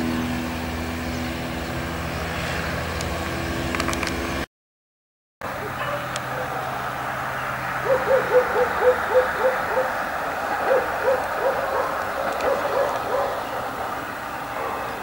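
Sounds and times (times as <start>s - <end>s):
dog barking: 5.5s - 6.7s, 7.8s - 10.0s, 10.6s - 13.8s, 14.5s - 15.0s.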